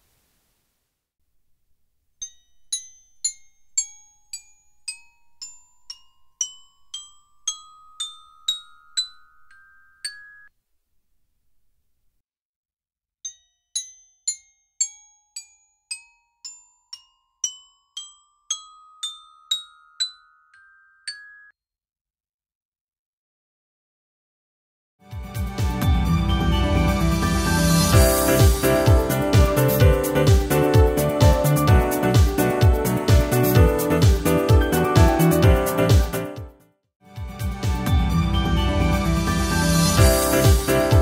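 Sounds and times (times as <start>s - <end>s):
glockenspiel notes ringing: 2.2s - 10.5s, 13.3s - 21.6s, 25.8s - 36.3s, 37.6s - 41.0s.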